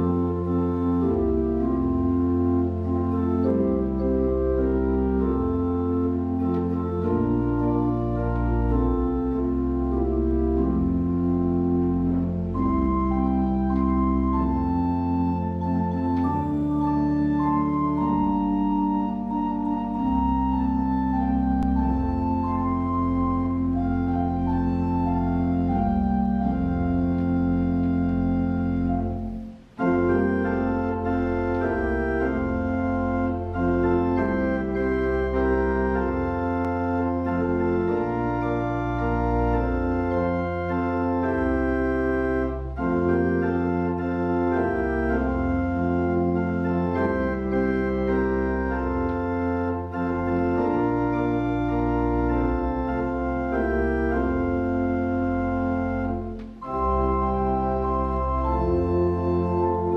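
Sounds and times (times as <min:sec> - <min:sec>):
organ playing slow chords: 0:00.0 - 0:59.9.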